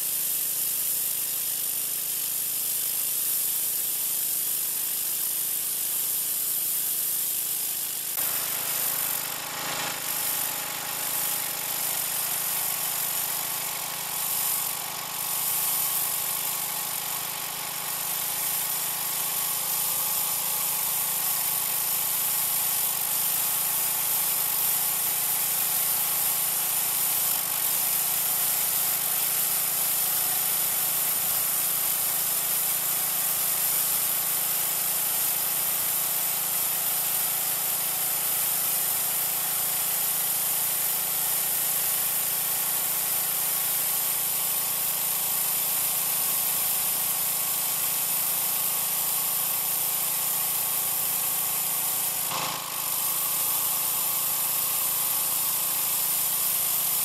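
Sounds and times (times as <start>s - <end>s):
water spray hissing on concrete: 0.0s - 57.0s
pressure washer engine hum: 8.2s - 20.2s.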